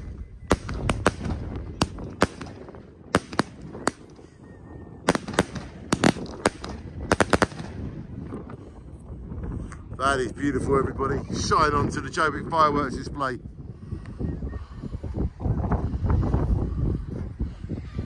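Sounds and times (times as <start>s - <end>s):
fireworks bangs and cracks: 0.5s - 4.1s, 5.1s - 8.1s.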